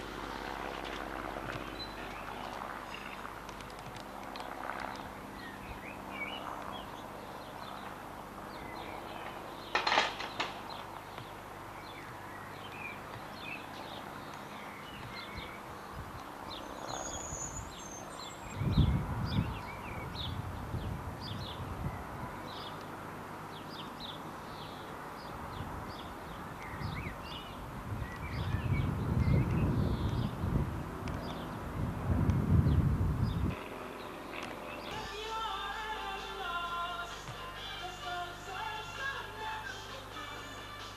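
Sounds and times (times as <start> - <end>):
small birds chirping: 0.0 - 40.2
wind buffeting microphone: 14.9 - 22.7, 25.3 - 34.9
background hiss: 34.8 - 40.9.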